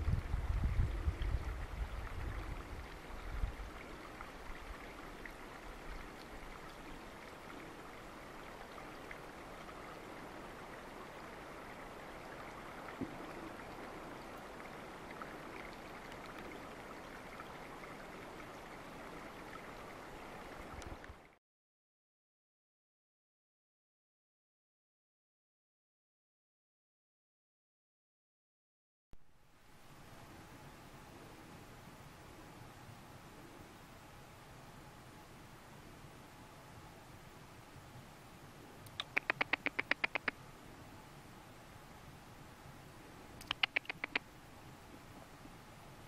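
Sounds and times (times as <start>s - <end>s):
low wind rumble: 0.0s - 16.0s
river water flowing: 1.2s - 21.4s, 29.4s - 46.0s
faint click: 43.4s - 44.2s.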